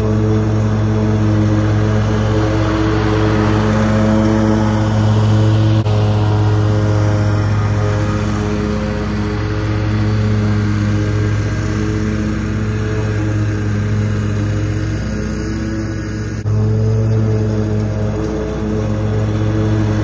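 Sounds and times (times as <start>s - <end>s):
mower engine running: 0.0s - 20.0s.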